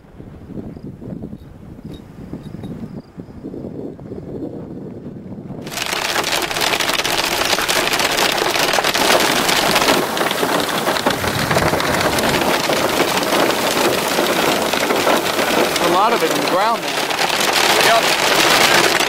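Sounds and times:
hail falling hard: 0:05.6 - 0:19.0.

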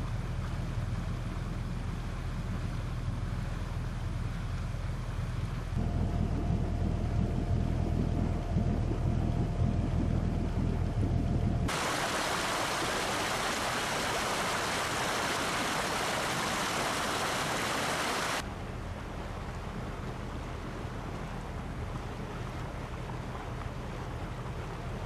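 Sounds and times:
boat engine drone: 0:00.0 - 0:25.0
loud rushing water: 0:11.7 - 0:25.0.

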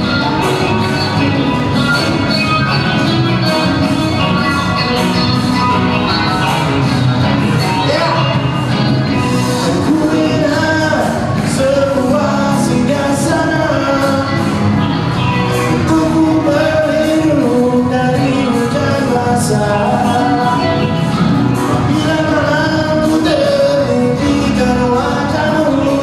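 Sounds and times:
bass: 0:00.0 - 0:26.0
drums: 0:00.0 - 0:26.0
electric guitars: 0:00.0 - 0:26.0
person singing: 0:00.0 - 0:26.0.

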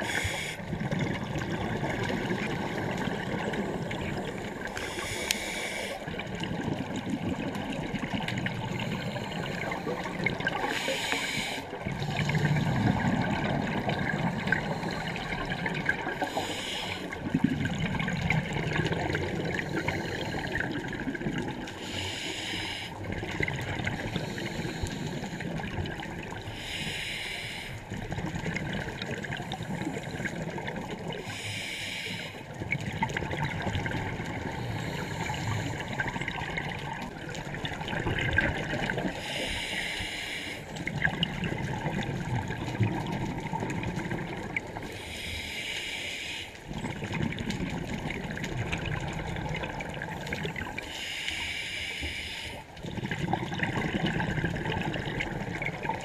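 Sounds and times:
regulator inhalation hiss: 0:00.0 - 0:00.6, 0:04.8 - 0:06.0, 0:10.7 - 0:11.7, 0:16.2 - 0:17.2, 0:21.8 - 0:22.9, 0:26.5 - 0:27.8, 0:31.3 - 0:32.4, 0:39.2 - 0:40.7, 0:45.0 - 0:46.6, 0:50.8 - 0:52.6
low bubbling of exhaled air: 0:00.0 - 0:05.2, 0:11.8 - 0:16.3, 0:17.1 - 0:21.8, 0:32.4 - 0:39.2, 0:40.7 - 0:45.0, 0:46.7 - 0:50.8, 0:52.7 - 0:56.0.

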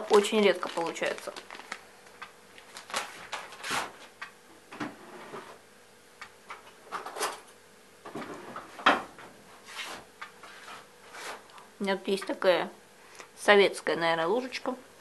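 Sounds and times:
packet rustling: 0:00.0 - 0:04.1.

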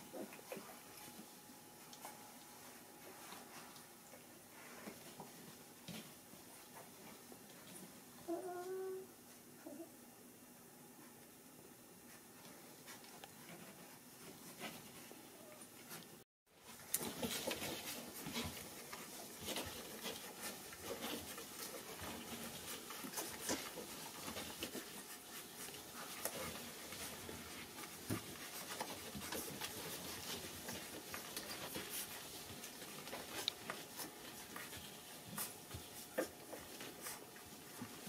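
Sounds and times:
puppies suckling: 0:00.1 - 0:05.6, 0:16.8 - 0:38.0.

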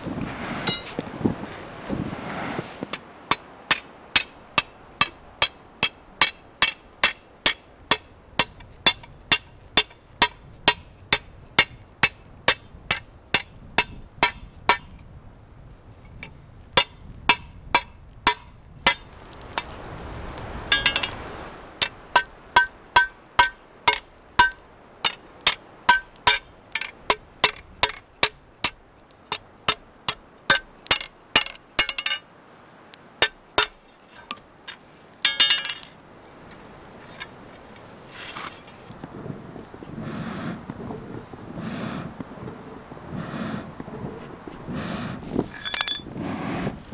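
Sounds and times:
noise: 0:00.0 - 0:46.9.

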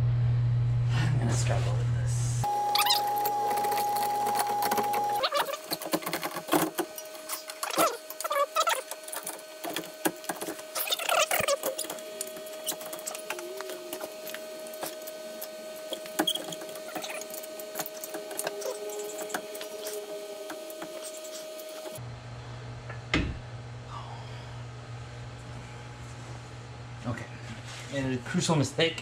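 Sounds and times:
low hum: 0:00.0 - 0:05.8
faint steady whine: 0:00.0 - 0:22.7.

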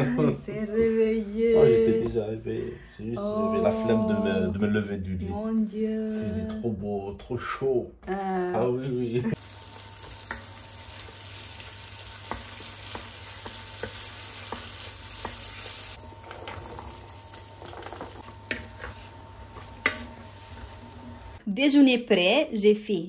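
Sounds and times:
food sizzling in a pan: 0:09.3 - 0:21.4.

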